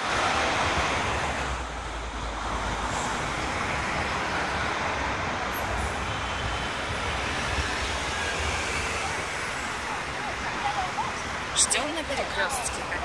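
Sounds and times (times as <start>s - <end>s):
traffic driving past: 0.0s - 13.0s.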